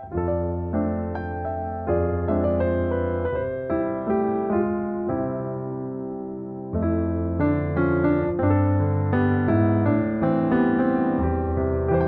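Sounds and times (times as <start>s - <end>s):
keyboard piano music: 0.0s - 12.0s.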